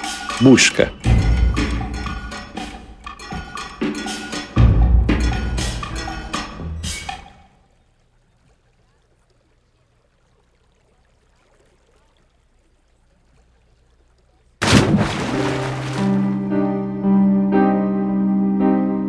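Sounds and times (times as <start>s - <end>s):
piano music: 15.3s - 19.0s.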